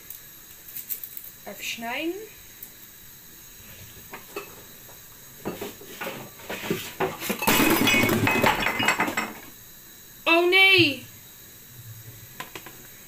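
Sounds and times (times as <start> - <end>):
kitchenware clattering: 4.1 - 4.6, 5.4 - 9.5
crockery crashing and breaking: 7.0 - 9.5
pieces chinking: 7.4 - 9.4.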